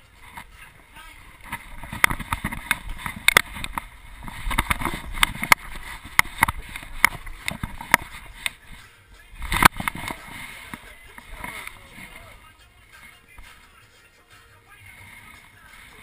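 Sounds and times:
camera handling clicks and knocks: 1.8s - 3.8s.

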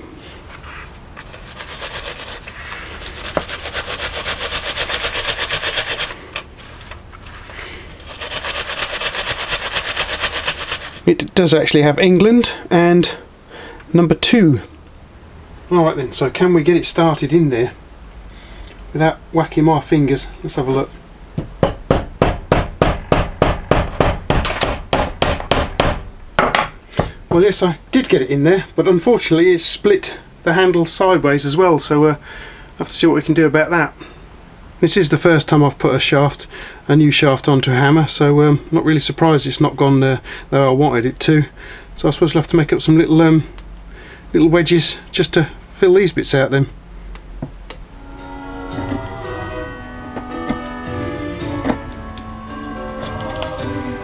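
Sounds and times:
wire brush scrubbing steel: 1.3s - 6.3s, 7.2s - 11.1s.

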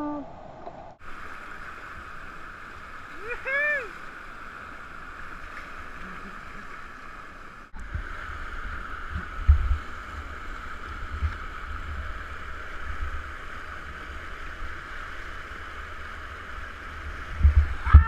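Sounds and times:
whitewater rapids rushing: 1.1s - 8.5s.

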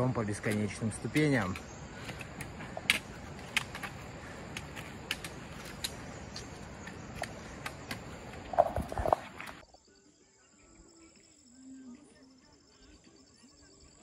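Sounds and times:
footsteps on stone steps: 0.0s - 9.6s.

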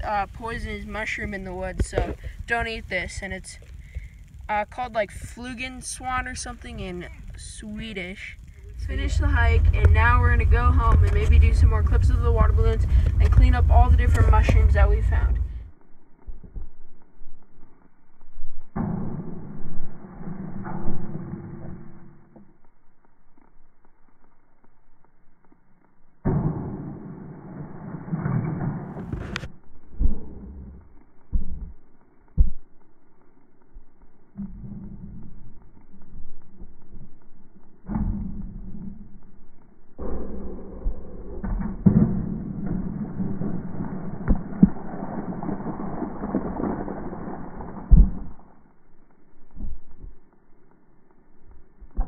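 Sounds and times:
heavy thumps: 8.4s - 15.7s
thud: 26.2s - 30.4s, 40.0s - 44.9s.

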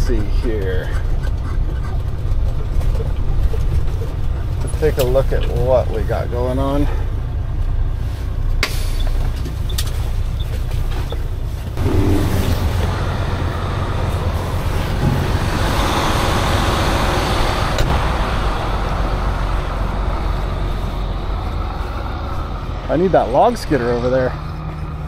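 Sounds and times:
truck engine rumbling: 0.0s - 25.0s.

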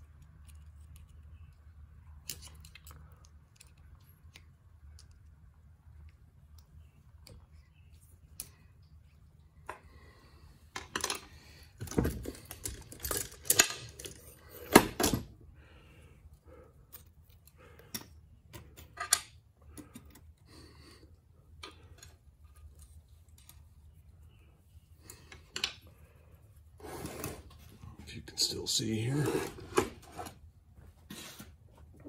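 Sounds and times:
metal tools clinking and knocking: 10.8s - 15.2s, 17.9s - 19.3s.

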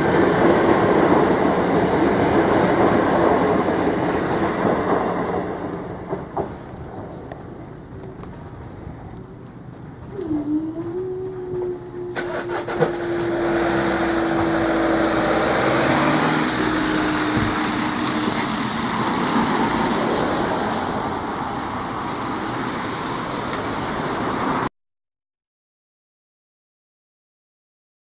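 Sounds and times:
tyres on wet road: 0.0s - 24.7s
traffic driving past: 11.0s - 24.7s.

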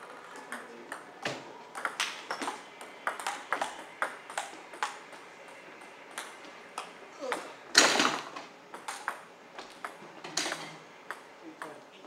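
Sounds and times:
table tennis ball ticking: 1.7s - 7.4s, 8.7s - 11.8s.

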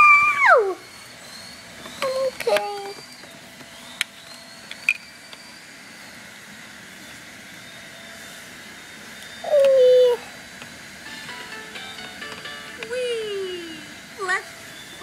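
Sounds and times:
steady low hiss: 11.0s - 14.1s.

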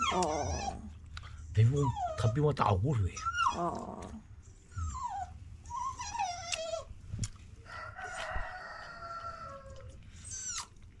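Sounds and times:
rooster crowing: 7.6s - 9.9s.

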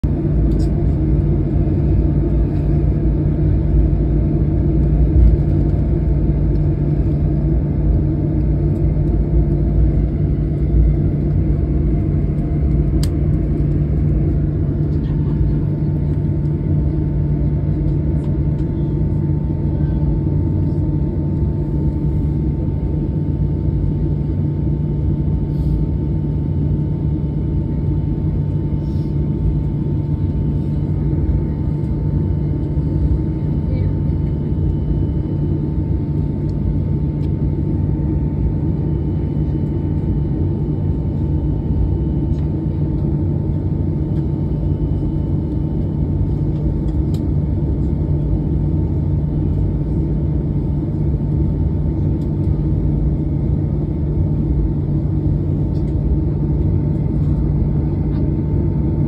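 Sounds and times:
jet airliner cabin rumble: 0.0s - 59.0s.

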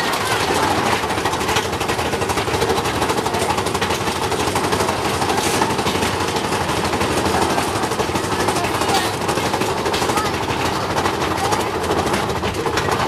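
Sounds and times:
roller coaster rattling on track: 0.0s - 13.0s.

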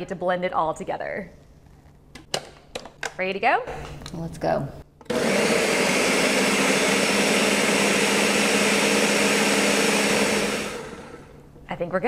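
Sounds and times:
blender running: 5.1s - 11.4s.

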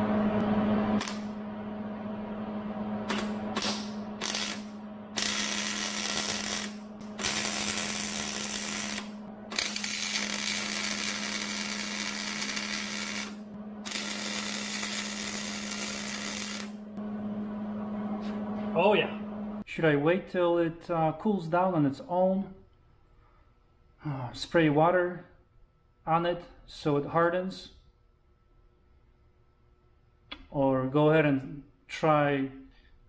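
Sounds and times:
steady low hum: 0.0s - 21.1s
welder arc crackling and hissing: 1.0s - 1.4s, 3.0s - 16.8s.

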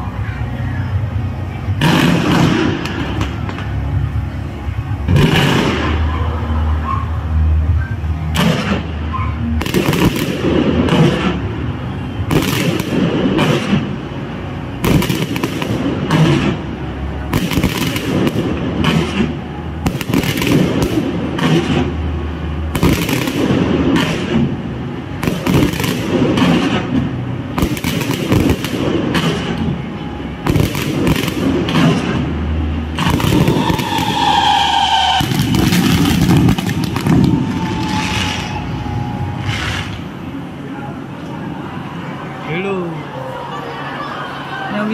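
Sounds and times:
fireworks bangs and crackle: 1.7s - 4.0s, 4.8s - 6.6s, 8.3s - 14.2s, 14.8s - 40.1s
whistling rising fireworks: 5.0s - 14.0s, 14.8s - 41.0s.

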